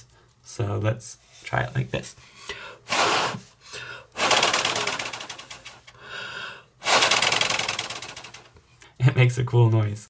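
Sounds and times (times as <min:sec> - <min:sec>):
paper flaps fluttering: 0:04.2 - 0:05.8, 0:06.9 - 0:08.5.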